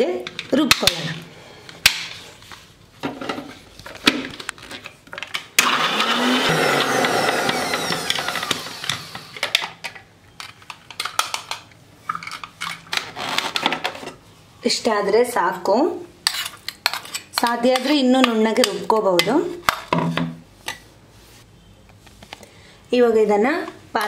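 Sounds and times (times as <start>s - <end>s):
electric mixer grinder motor: 5.6s - 9.4s.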